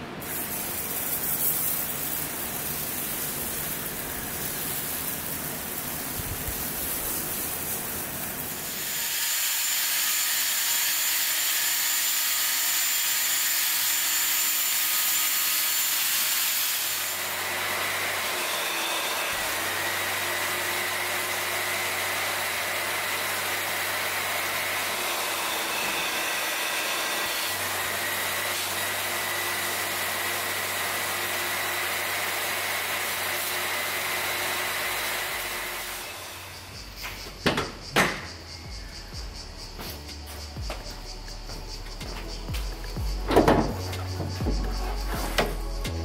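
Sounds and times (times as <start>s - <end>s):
water spraying and sucking: 0.2s - 12.3s, 39.1s - 46.0s
drill whine scrubbing carpet: 0.7s - 36.6s
carpet extractor humming: 17.2s - 37.2s.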